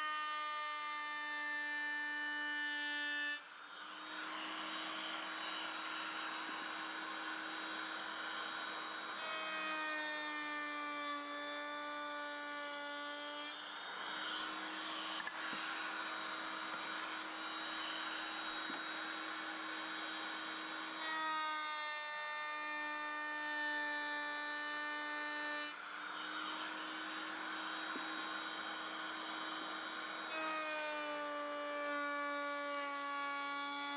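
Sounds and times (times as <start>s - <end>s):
woodworking power tool running: 0.0s - 33.9s.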